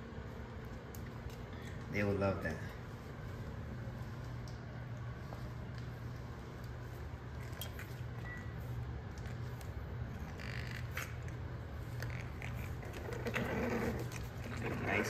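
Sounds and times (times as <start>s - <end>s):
steady low hum: 0.0s - 15.0s
puppies crunching kibble: 9.0s - 15.0s.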